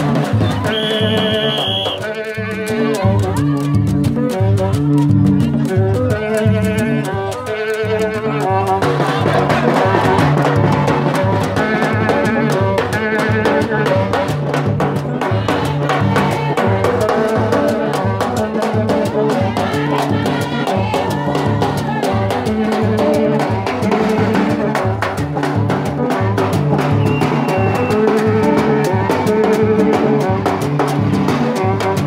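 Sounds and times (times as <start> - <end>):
hand drums and snare beat: 0.0 - 32.0
voices singing along: 0.3 - 2.0, 15.1 - 24.6
horns blaring repeated notes: 0.6 - 3.4.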